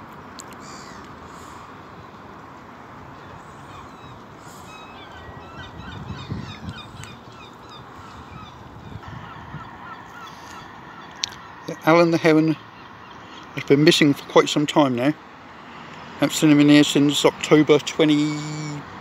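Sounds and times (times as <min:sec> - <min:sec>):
outdoor background noise: 0:00.0 - 0:19.0
waterfowl calling: 0:00.6 - 0:01.7, 0:03.2 - 0:13.6.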